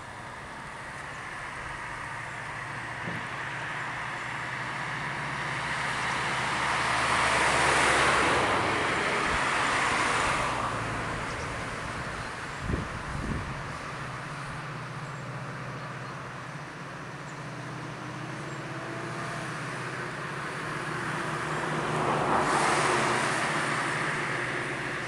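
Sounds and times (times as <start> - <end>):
locomotive low hum: 0.0 - 25.0.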